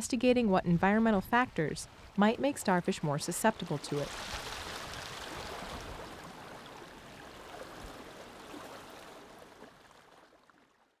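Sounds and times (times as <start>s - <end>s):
seawater washing over rocks: 3.7s - 10.2s.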